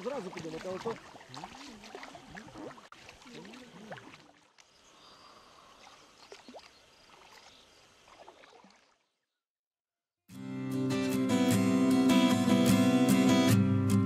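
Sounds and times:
small splashes: 0.0s - 9.2s
water sloshing around boat: 0.0s - 9.2s.

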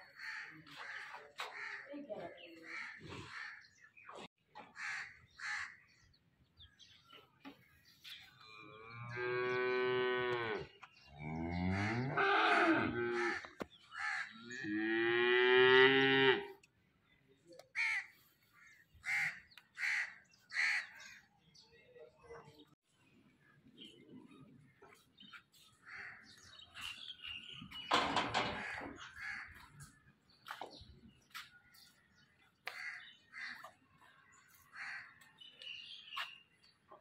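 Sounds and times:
crows cawing: 0.1s - 1.9s, 4.7s - 5.8s, 11.7s - 14.5s, 17.8s - 21.2s, 25.8s - 26.4s, 28.5s - 29.7s, 32.7s - 33.8s, 34.7s - 35.2s
cattle mooing: 8.6s - 13.3s.

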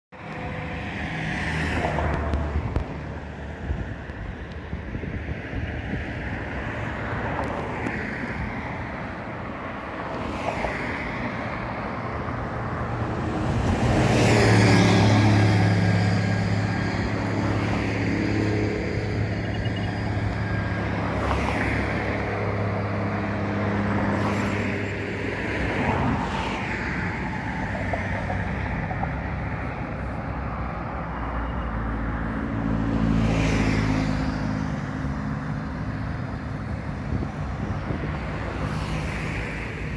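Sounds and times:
vehicles passing: 0.1s - 39.9s
engine drone: 12.1s - 26.4s.

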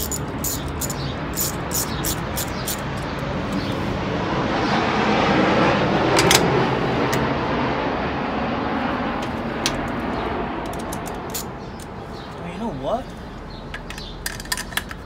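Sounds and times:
hand tool metal clicks: 0.0s - 3.6s, 10.6s - 11.9s
passing motor vehicle engine: 0.0s - 14.1s.

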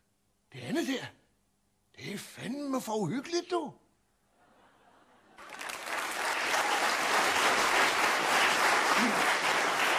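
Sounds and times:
audience applause: 5.4s - 9.9s.

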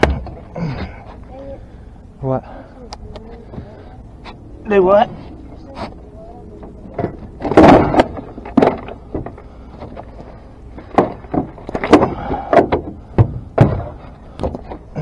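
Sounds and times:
knocks and thumps on boat: 10.8s - 14.9s.

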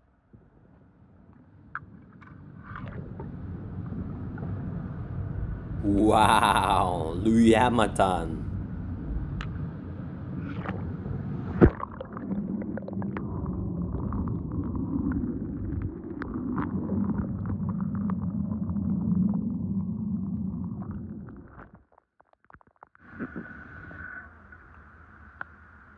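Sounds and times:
underwater churning bubbling water: 10.8s - 21.3s.

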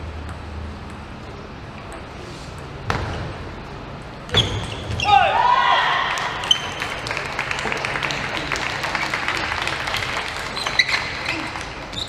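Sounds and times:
crowd applauding: 6.1s - 11.8s.

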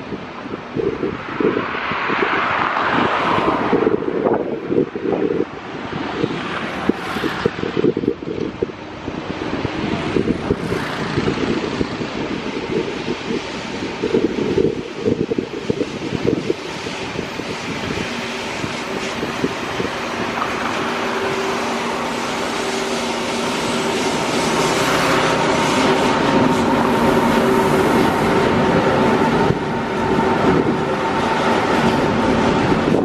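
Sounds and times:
train wheels rolling on rail: 4.4s - 33.0s
locomotive humming tones: 7.8s - 33.0s.

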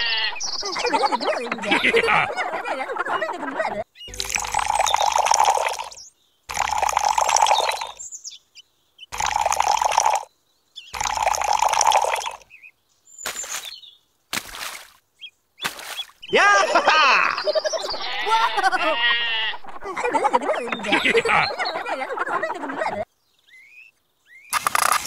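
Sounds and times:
water pouring into a tank: 4.1s - 8.0s, 9.2s - 10.3s, 11.0s - 12.4s.

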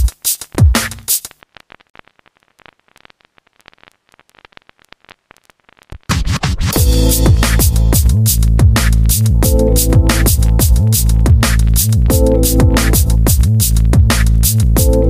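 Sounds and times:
heavy kick drums: 0.0s - 1.1s, 6.7s - 15.0s
electronic music: 6.2s - 15.0s
deep bass beat: 6.7s - 15.0s.

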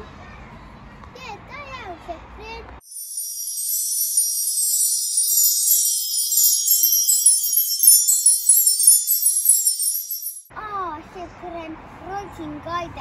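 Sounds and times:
high tinkling chimes: 2.8s - 10.5s.

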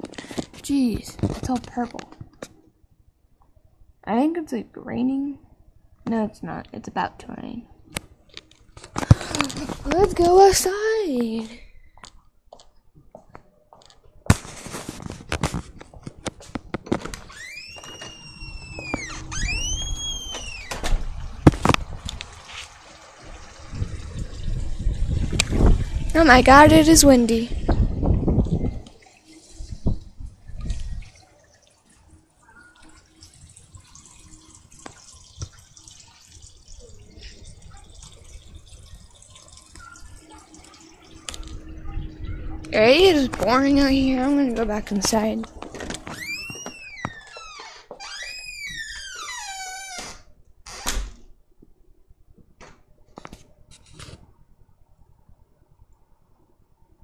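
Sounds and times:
water dripping: 15.8s - 49.4s
door squeaking: 17.0s - 21.2s, 45.7s - 51.2s
water trickling into pond: 17.3s - 49.8s
wind rumble on microphone: 18.3s - 22.5s, 23.2s - 31.2s, 41.2s - 47.0s.

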